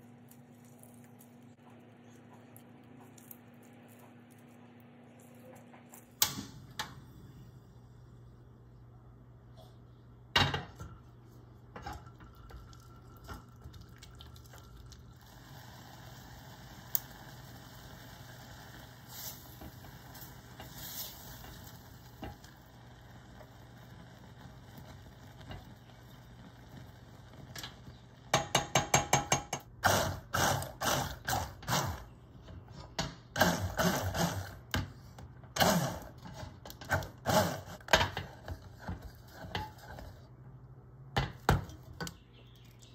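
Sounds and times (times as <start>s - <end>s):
fruit simmering in a saucepan: 9.7s - 30.8s
immersion blender bursts: 29.8s - 32.1s, 33.3s - 34.6s, 35.6s - 36.2s, 36.9s - 37.9s.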